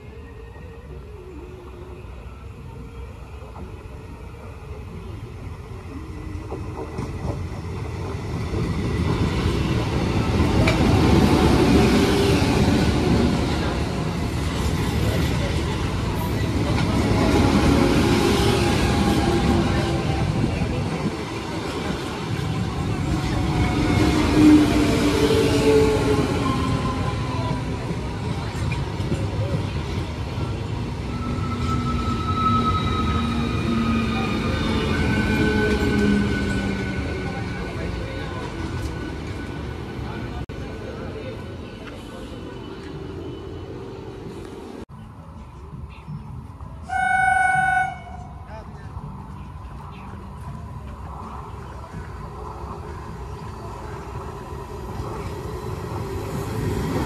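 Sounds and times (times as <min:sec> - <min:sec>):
train wheels rumbling on rails: 0:05.9 - 0:46.9.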